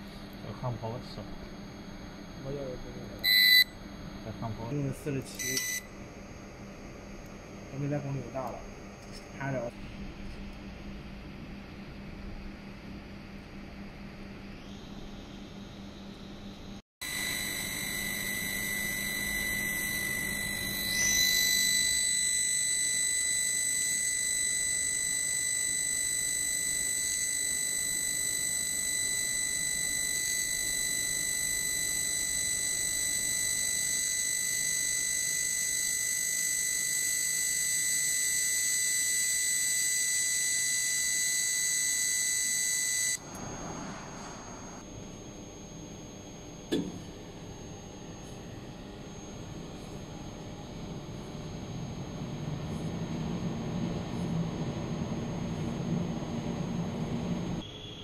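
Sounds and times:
laser cutting machine whine: 0.0s - 58.0s.

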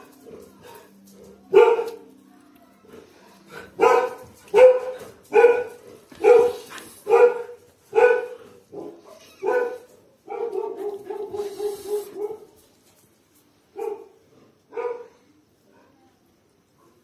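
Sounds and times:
dog barking: 1.5s - 2.4s, 3.7s - 12.6s, 13.8s - 15.2s.

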